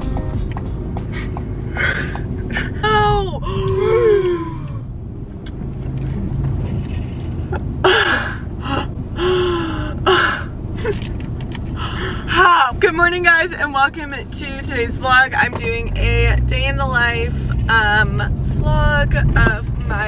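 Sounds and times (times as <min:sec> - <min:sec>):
car cabin rumble: 0:00.0 - 0:20.0.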